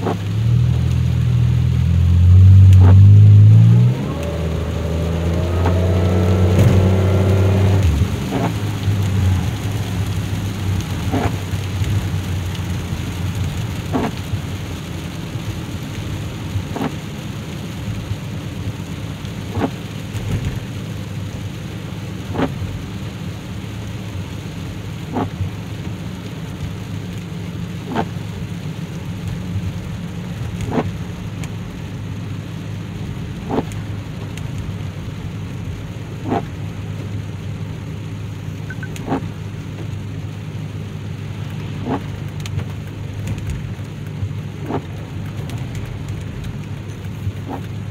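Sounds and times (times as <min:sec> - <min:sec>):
engine and road drone: 0:00.0 - 0:47.9
rain hissing on car: 0:00.0 - 0:47.9
windshield wiper thumping: 0:06.4 - 0:09.0, 0:11.0 - 0:11.5, 0:13.8 - 0:14.4, 0:16.6 - 0:17.0, 0:19.4 - 0:20.7, 0:22.2 - 0:22.6, 0:25.1 - 0:25.4, 0:27.8 - 0:28.2, 0:33.4 - 0:33.9, 0:36.2 - 0:36.6, 0:38.7 - 0:40.0, 0:41.5 - 0:47.9.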